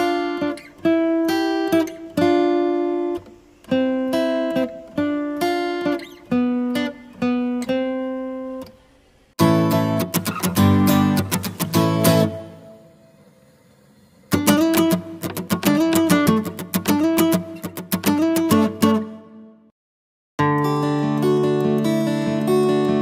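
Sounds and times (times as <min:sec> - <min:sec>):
plucked guitar notes: 0:00.0 - 0:08.8, 0:09.4 - 0:13.2, 0:14.3 - 0:19.6, 0:20.4 - 0:23.0
strummed guitar: 0:00.0 - 0:19.6, 0:20.4 - 0:23.0.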